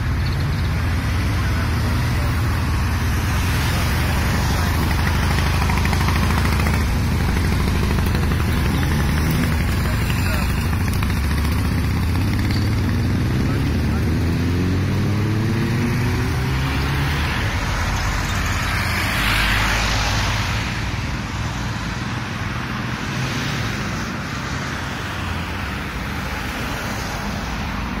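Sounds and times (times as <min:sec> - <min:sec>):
vehicle passing: 0:00.0 - 0:21.0
road noise: 0:00.0 - 0:28.0
vehicle engine: 0:00.0 - 0:28.0.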